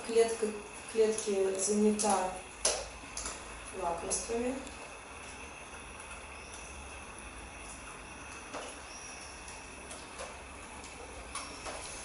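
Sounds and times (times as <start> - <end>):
low room hum: 0.0 - 12.0.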